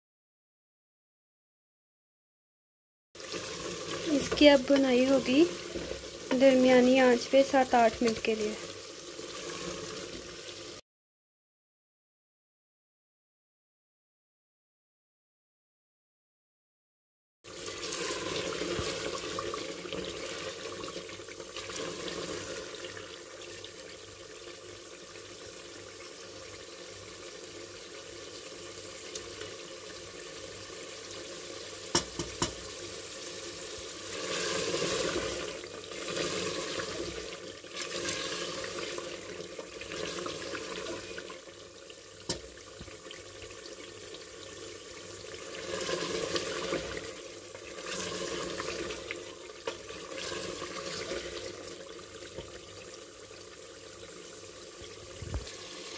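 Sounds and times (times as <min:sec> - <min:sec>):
meat sizzling in a pot: 0:03.2 - 0:10.8, 0:17.5 - 0:55.9
spoon knocking against pot: 0:31.9 - 0:32.6.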